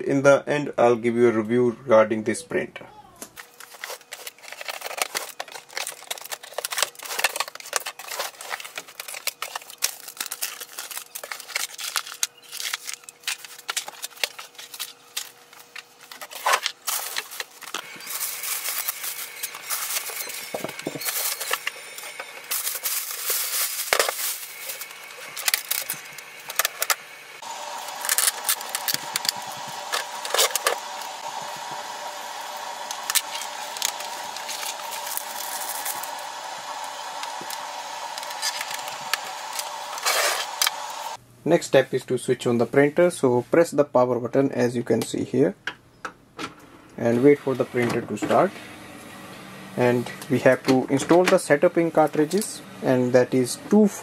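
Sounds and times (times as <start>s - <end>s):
plastic bag and foam crinkling: 2.9s - 41.2s.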